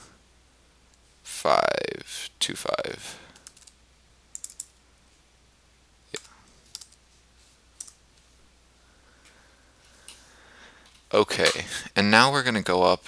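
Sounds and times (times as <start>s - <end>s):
computer keyboard keystrokes: 3.4s - 4.7s, 6.2s - 7.0s.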